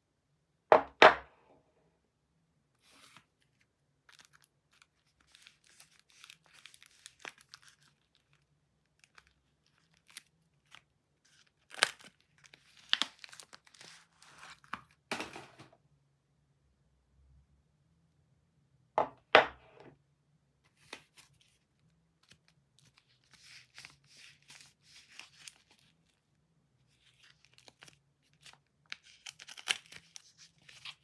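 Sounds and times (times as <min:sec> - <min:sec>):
wrapper ripping and crinkling: 0:03.0 - 0:14.8, 0:26.9 - 0:31.0.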